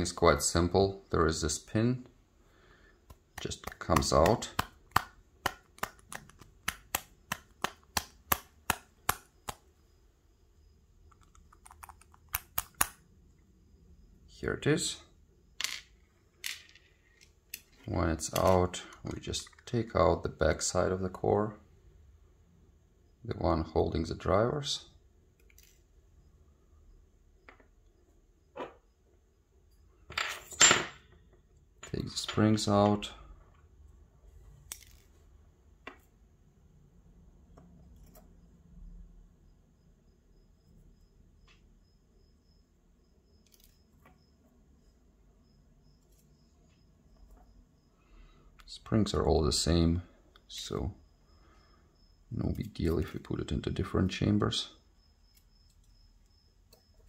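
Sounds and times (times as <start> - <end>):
small sharp lock clicks: 11.2 - 13.0.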